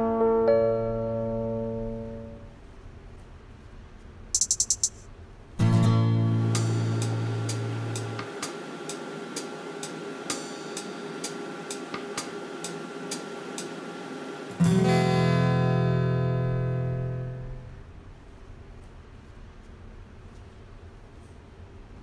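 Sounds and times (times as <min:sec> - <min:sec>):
microwave oven hum: 0:00.0 - 0:02.6, 0:05.6 - 0:18.6
muted ticks: 0:04.4 - 0:05.0
strummed guitar chord: 0:05.6 - 0:13.8, 0:14.4 - 0:17.8.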